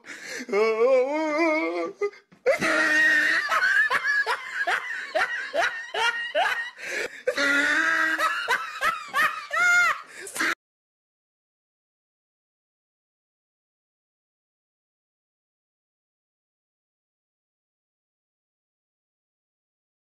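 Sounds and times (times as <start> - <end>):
person laughing hard: 2.0 - 10.6.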